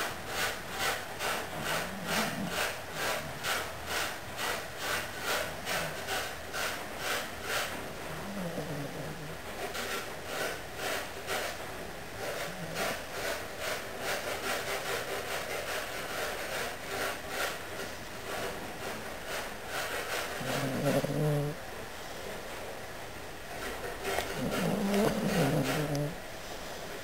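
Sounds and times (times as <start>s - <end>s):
dog breathing through nose: 0.0s - 11.6s, 12.2s - 17.6s, 18.2s - 21.6s, 24.0s - 26.9s
dog low vocal sound: 1.6s - 3.4s, 8.2s - 9.4s, 20.4s - 21.6s, 24.2s - 26.2s.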